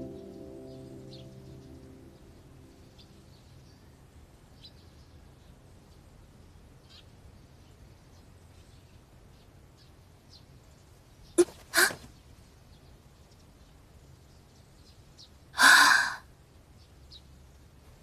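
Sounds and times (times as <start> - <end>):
soft background music: 0.0 - 4.2.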